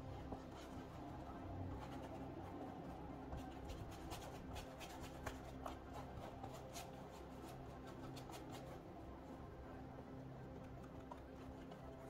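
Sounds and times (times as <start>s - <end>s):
paintbrush scrubbing canvas: 0.2s - 8.9s.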